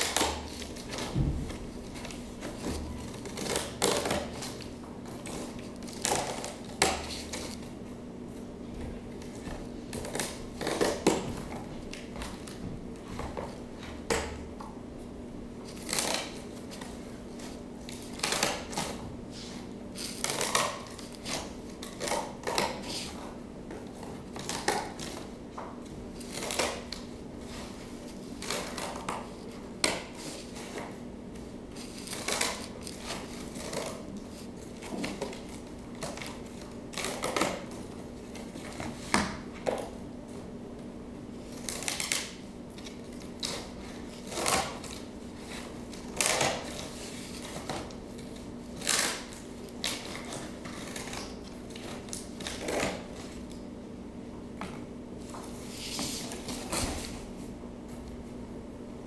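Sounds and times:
steady low hum: 0:00.0 - 0:59.0.

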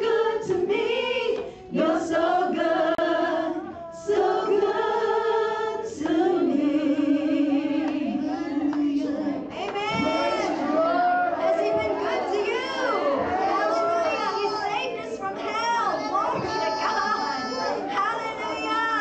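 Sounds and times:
women singing a slow chorus: 0:00.0 - 0:13.4
singers breathing: 0:01.4 - 0:01.8.

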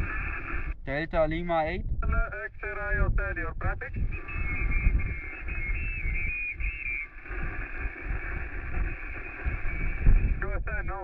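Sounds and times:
radio whistling tones: 0:00.0 - 0:00.8, 0:03.8 - 0:11.0
radio static hiss: 0:00.0 - 0:11.0
wind rumble on microphone: 0:00.0 - 0:11.0.

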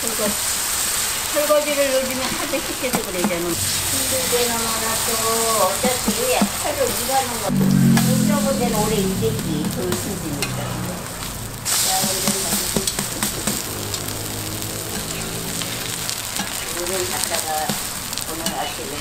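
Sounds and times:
pancakes sizzling on a griddle: 0:00.0 - 0:07.1, 0:11.4 - 0:19.0.

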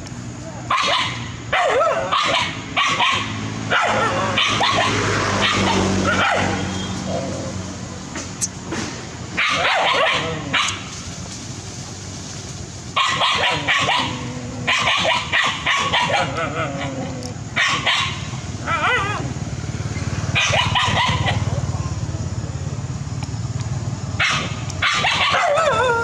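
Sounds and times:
dogs barking and yipping: 0:00.7 - 0:08.7, 0:09.3 - 0:11.0, 0:12.9 - 0:21.8, 0:24.1 - 0:26.0.

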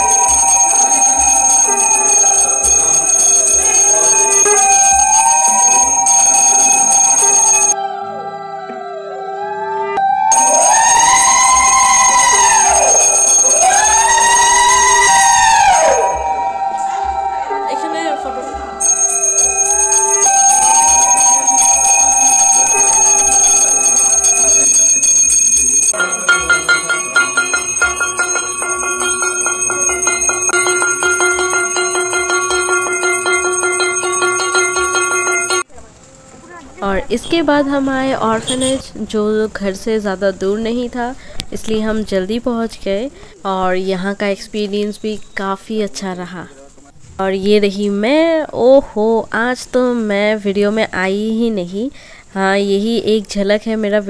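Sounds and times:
hand bell ringing: 0:00.0 - 0:07.8, 0:10.3 - 0:10.7, 0:12.6 - 0:14.2, 0:18.8 - 0:35.7
rhythmic mallet chiming: 0:00.0 - 0:07.8, 0:10.3 - 0:35.7
sustained rising and falling tones: 0:07.8 - 0:18.8.

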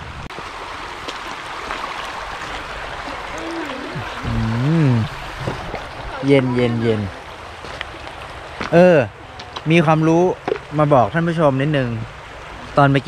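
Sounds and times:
stream flowing over rocks: 0:00.1 - 0:13.0
person's drawn-out gliding voice: 0:03.1 - 0:05.2.

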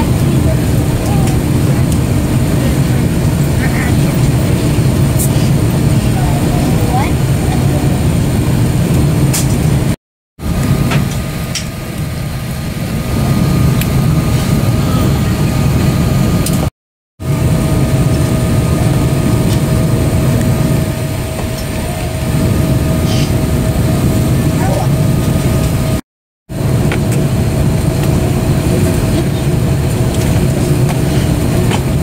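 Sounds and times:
airliner cabin rumble: 0:00.0 - 0:32.0.

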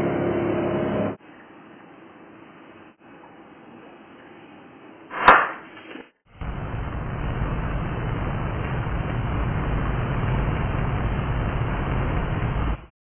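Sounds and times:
swish ending in sharp crack: 0:05.1 - 0:05.7
steady rushing with deep rumble: 0:06.4 - 0:12.9.

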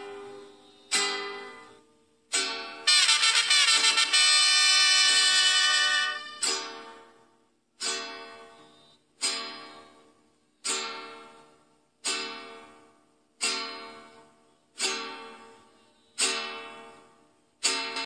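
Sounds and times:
plucked string chords: 0:00.0 - 0:07.2.

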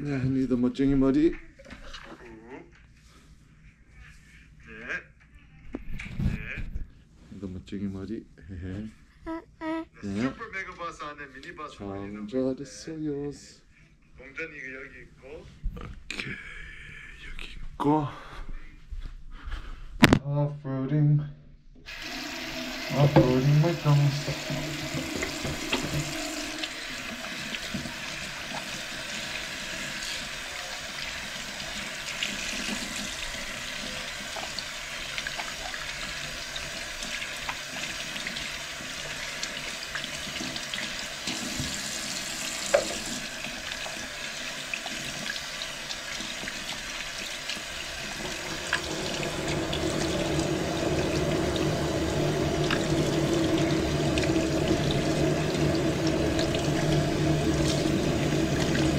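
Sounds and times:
water running from tap: 0:21.9 - 0:58.9
hands washing in water: 0:31.3 - 0:58.9
deep humming tone: 0:48.7 - 0:58.9.

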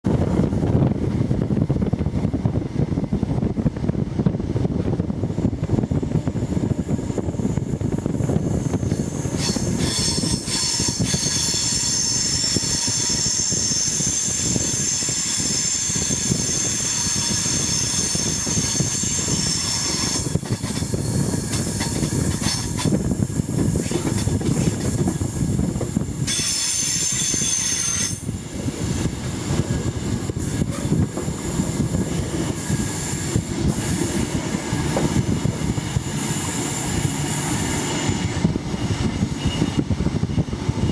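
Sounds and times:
train rumble: 0:00.0 - 0:40.9
train wheels squealing: 0:08.0 - 0:28.4, 0:32.4 - 0:40.9.

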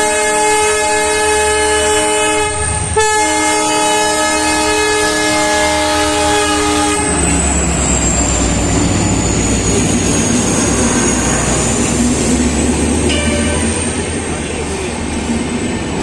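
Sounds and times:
train horn: 0:00.0 - 0:07.3, 0:13.1 - 0:14.2
train coaches rumbling past: 0:00.0 - 0:16.0.

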